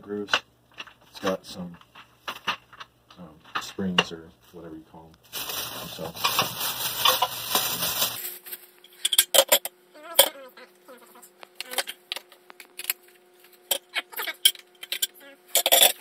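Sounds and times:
faint steady hum: 0.0 - 16.0
plastic parts knocking and clicking: 0.3 - 4.1.

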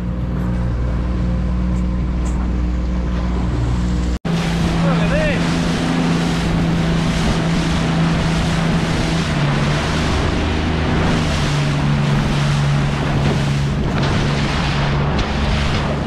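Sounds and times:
boat engine running: 0.0 - 16.0
hull rushing through water: 0.0 - 16.0
wind buffeting microphone: 4.3 - 16.0.

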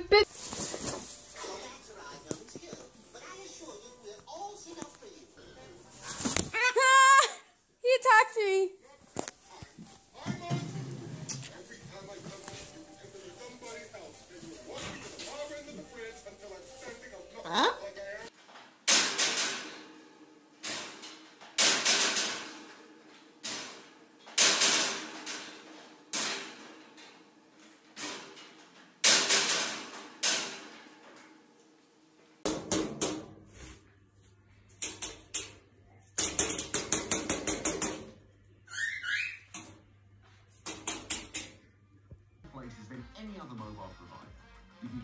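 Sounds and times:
loud ringing clanks of wire cage: 18.8 - 31.4.

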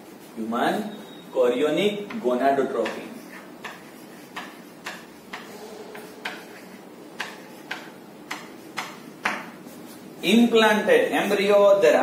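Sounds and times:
chalk tapping on chalkboard: 1.8 - 10.2.

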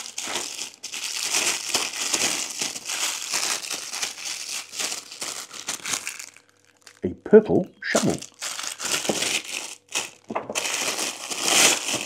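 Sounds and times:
plastic packaging crinkling: 0.0 - 7.1, 7.9 - 12.0.

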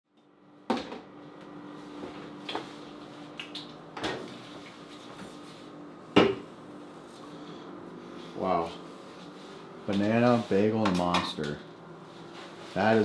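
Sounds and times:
steady low hum: 0.2 - 13.0.

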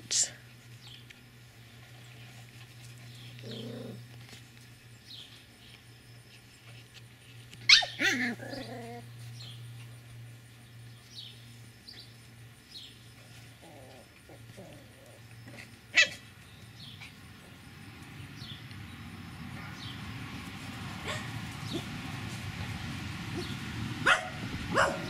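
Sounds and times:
puppies play-fighting: 0.6 - 23.9
puppy growling: 3.1 - 4.2, 7.8 - 9.2, 13.6 - 15.6
sharp dog bark: 24.0 - 25.0.

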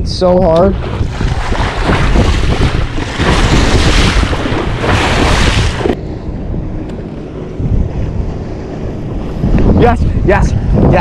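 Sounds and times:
wind buffeting microphone: 0.0 - 11.0
waves rushing around boat: 0.1 - 11.0.

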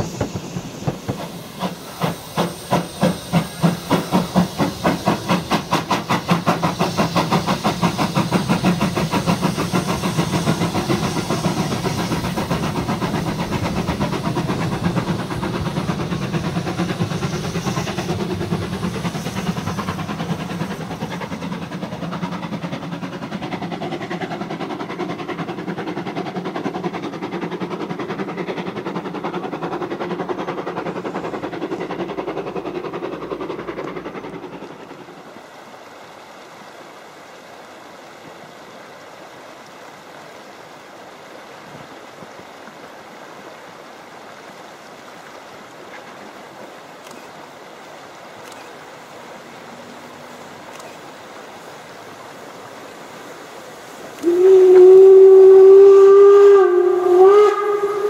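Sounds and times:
steam locomotive chuffing: 0.0 - 35.6, 48.3 - 58.0
stream trickling: 0.0 - 58.0.

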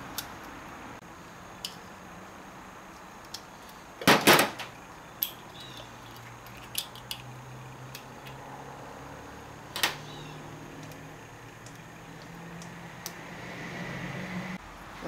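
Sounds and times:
metal clicks and clinks of pliers: 6.1 - 7.3.

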